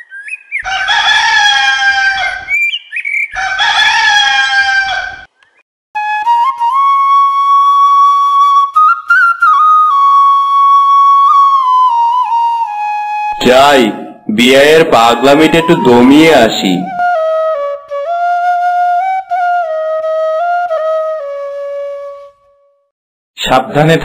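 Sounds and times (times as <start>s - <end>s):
rooster crowing: 0.6s - 2.6s, 3.4s - 5.3s
flute slow melody: 6.0s - 22.9s.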